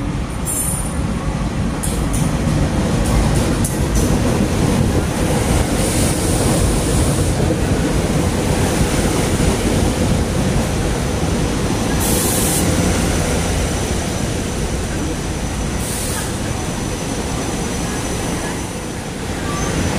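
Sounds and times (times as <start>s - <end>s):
train wheels rumbling on rail: 0.0s - 19.9s
high hiss: 11.9s - 13.9s.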